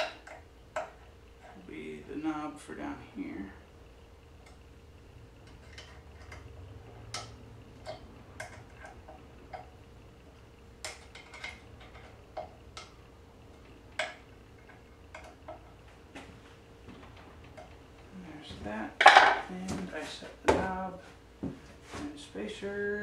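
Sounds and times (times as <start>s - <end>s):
faint steady hum: 0.0s - 23.0s
metal parts clicking and tapping: 5.4s - 6.5s, 7.1s - 9.7s, 10.8s - 15.8s.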